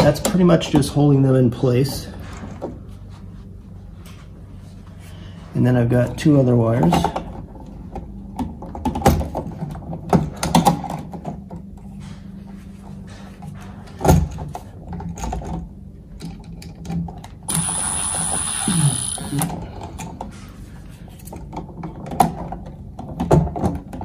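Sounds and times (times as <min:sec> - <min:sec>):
cordless drill whining: 0:17.5 - 0:19.5.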